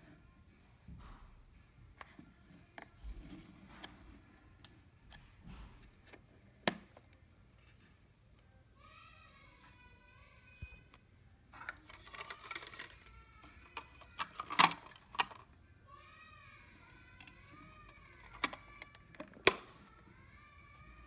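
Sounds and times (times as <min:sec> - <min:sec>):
plastic camera clicks and rattles: 0:11.6 - 0:15.5, 0:17.2 - 0:19.7.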